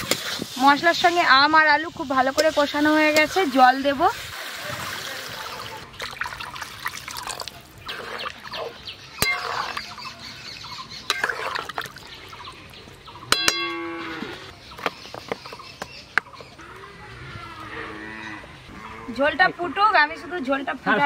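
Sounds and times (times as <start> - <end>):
spatula stirring and scraping: 0.0 - 1.3, 7.7 - 10.2, 11.1 - 12.3
water pouring into a wok: 4.2 - 8.3
cow mooing: 13.7 - 14.5, 16.6 - 19.8.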